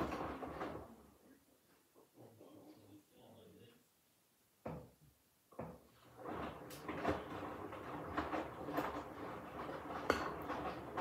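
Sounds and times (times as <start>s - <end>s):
laundry sloshing and thudding: 0.0s - 1.1s, 5.6s - 11.0s
washing machine drum turning: 5.6s - 11.0s.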